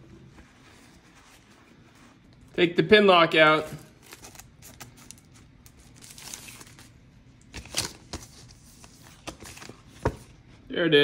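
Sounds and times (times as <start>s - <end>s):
plastic packaging crinkling: 3.9s - 8.4s.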